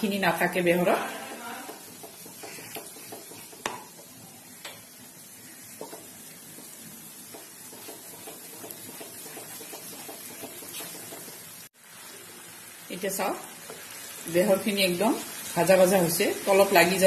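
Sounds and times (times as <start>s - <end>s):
paste sizzling in hot oil: 0.1s - 17.0s
wooden spatula scraping a pan: 0.8s - 4.2s, 5.7s - 11.6s
spatula knocking on a pan: 1.3s - 4.8s, 5.7s - 11.5s.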